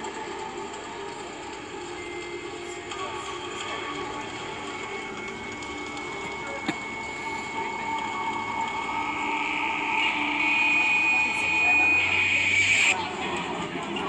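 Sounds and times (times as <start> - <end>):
eerie film soundtrack drone: 0.0 - 14.0.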